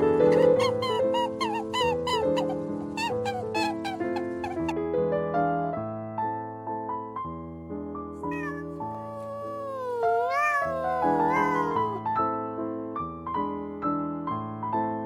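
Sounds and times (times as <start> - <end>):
cat meowing: 0.0 - 4.7, 8.2 - 12.0
piano music: 0.0 - 15.0.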